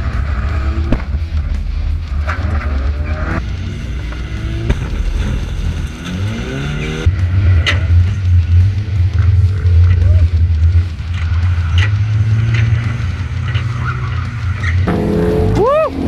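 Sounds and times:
car engines revving: 0.0s - 16.0s
sharp car impact: 4.6s - 6.4s.

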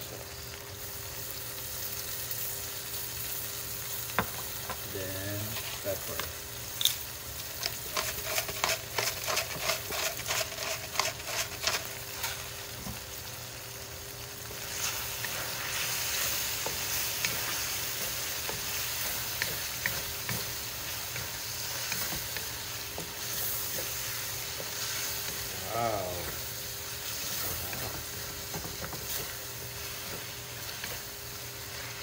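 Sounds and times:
meat sizzling in a frying pan: 0.0s - 32.0s
spatula stirring in a pan: 7.5s - 13.2s, 14.2s - 32.0s.

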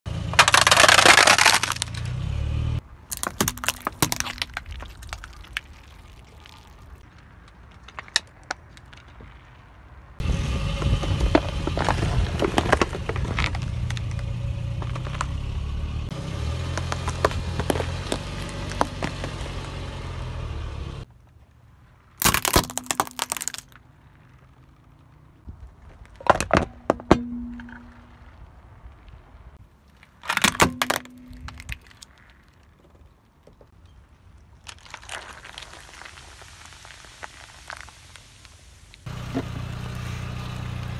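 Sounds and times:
plastic plates crackling and shattering: 0.4s - 2.0s, 3.1s - 7.0s, 22.2s - 23.8s, 29.9s - 32.6s.

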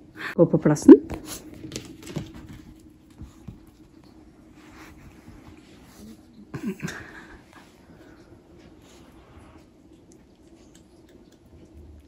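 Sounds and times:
dog paws pattering and clicking: 1.0s - 6.3s.

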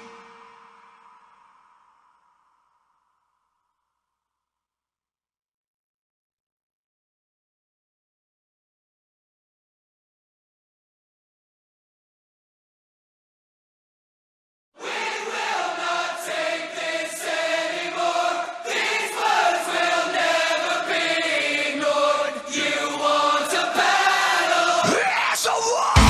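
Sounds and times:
choir singing sustained notes: 0.0s - 2.7s, 14.8s - 25.0s.

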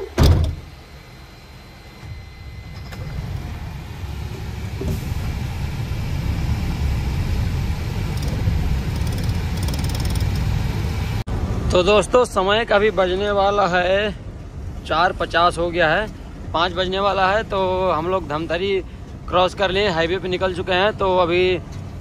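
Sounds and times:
loud thump: 0.2s - 0.7s
truck diesel engine rumble: 2.4s - 22.0s.

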